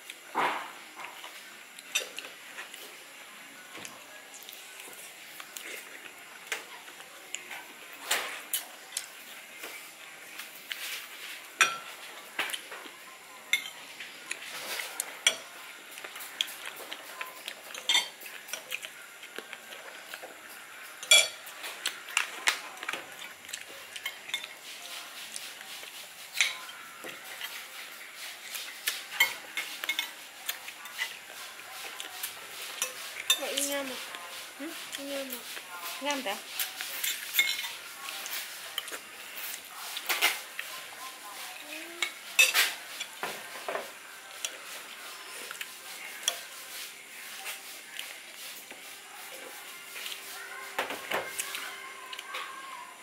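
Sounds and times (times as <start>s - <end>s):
utensils clinking against dishes: 1.1s - 2.8s, 10.4s - 18.9s, 19.7s - 24.8s, 25.4s - 34.2s, 36.1s - 47.6s
stirring and scraping: 13.5s - 52.6s.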